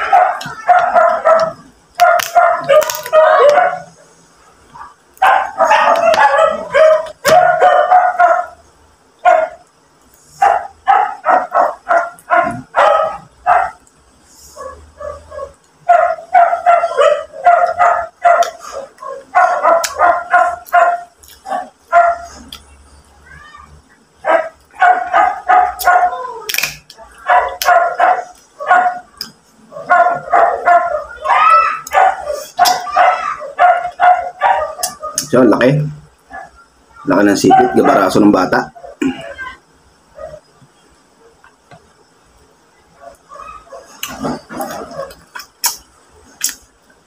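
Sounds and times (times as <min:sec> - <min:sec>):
dog barking and yipping: 0:00.0 - 0:04.0, 0:04.8 - 0:08.6, 0:09.2 - 0:09.7, 0:10.4 - 0:13.9, 0:14.5 - 0:22.6, 0:24.2 - 0:35.6, 0:36.3 - 0:39.0, 0:40.1 - 0:40.4, 0:43.0 - 0:45.4.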